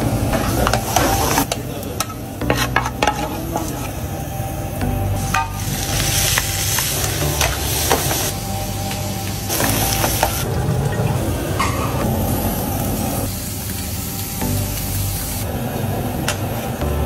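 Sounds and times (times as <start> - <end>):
frying sizzle: 0.0 - 17.0
metal ladle scraping frying pan: 0.4 - 3.9.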